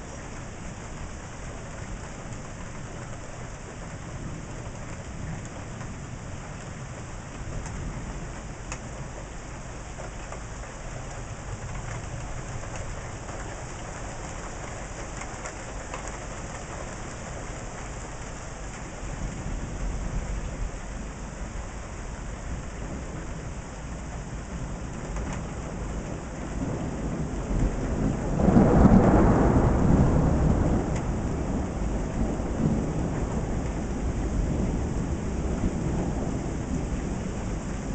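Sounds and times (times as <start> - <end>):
steady rain: 0.0 - 37.9
thunder rumbling: 11.4 - 37.9.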